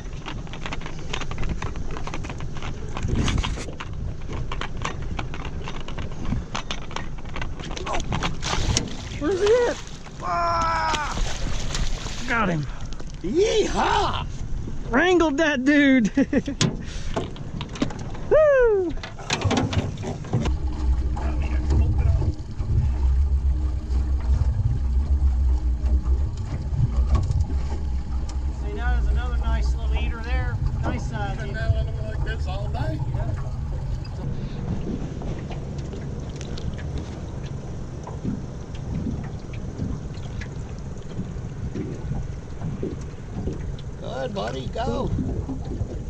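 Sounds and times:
wind rumble on microphone: 0:00.0 - 0:13.0, 0:16.4 - 0:46.0
outboard motor idling: 0:00.0 - 0:46.0
water splashing and dripping: 0:07.8 - 0:13.3.

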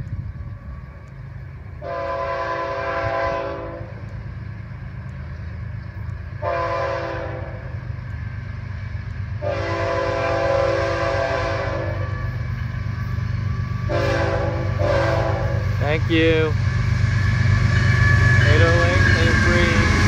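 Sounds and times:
low rumble of train: 0:00.0 - 0:20.0
locomotive air horn blasts: 0:01.8 - 0:04.0, 0:06.4 - 0:07.7, 0:09.4 - 0:12.2, 0:13.9 - 0:15.7.

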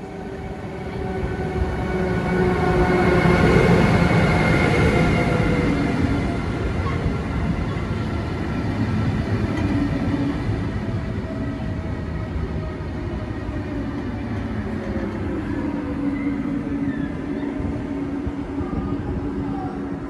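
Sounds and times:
electric locomotive rumbling: 0:00.0 - 0:20.0.

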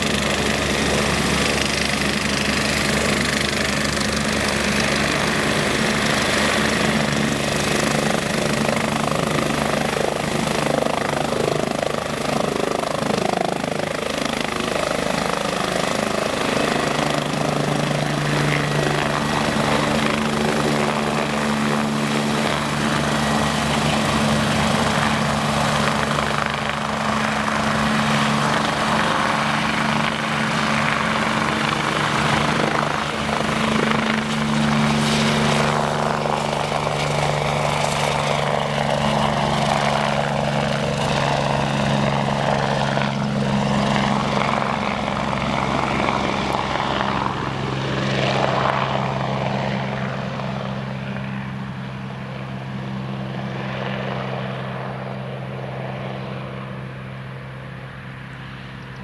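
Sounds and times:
helicopter engine hum: 0:00.0 - 0:59.0
helicopter rotor beat: 0:00.0 - 0:59.0.

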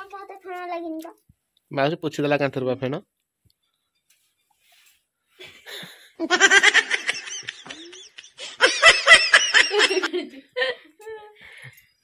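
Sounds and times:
woman laughing hard: 0:05.7 - 0:10.9.

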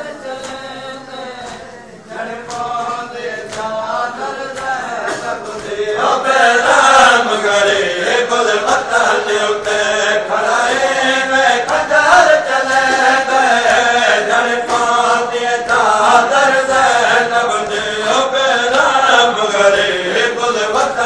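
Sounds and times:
men chanting a lament: 0:00.0 - 0:21.0
chest-beating slaps: 0:02.4 - 0:03.8, 0:04.5 - 0:06.2, 0:08.6 - 0:12.0, 0:12.6 - 0:19.0.

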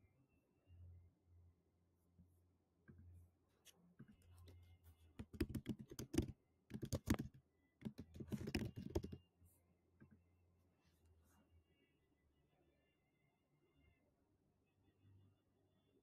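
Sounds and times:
faint low hum: 0:00.0 - 0:16.0
typing on computer keyboard: 0:05.2 - 0:09.2.

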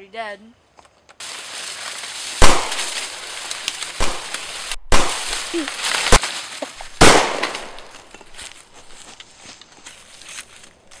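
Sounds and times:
gunshot bangs: 0:02.4 - 0:03.0, 0:04.9 - 0:05.3, 0:07.0 - 0:07.9.

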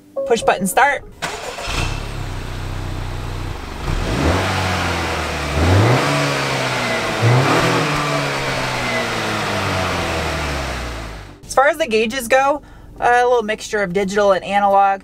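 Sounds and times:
car exhaust idling and revving: 0:01.0 - 0:11.4.

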